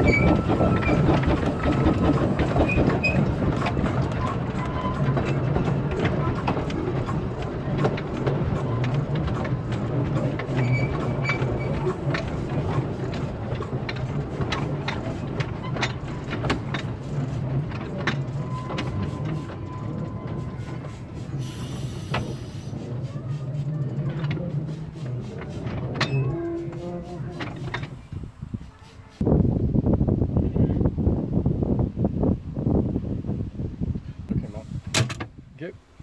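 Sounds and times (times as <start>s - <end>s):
sharp clicks and knocks: 0.0s - 21.3s, 23.9s - 28.0s
steam locomotive rumbling: 0.0s - 35.0s.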